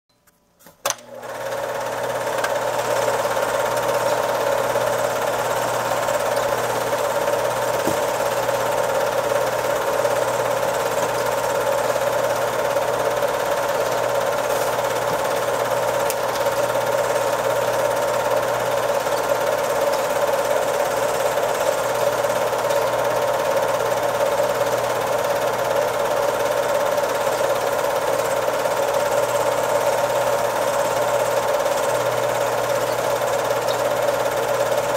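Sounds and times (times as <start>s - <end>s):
film projector switch click: 0.8s - 1.2s, 15.8s - 16.6s
film projector whirring: 0.8s - 34.9s.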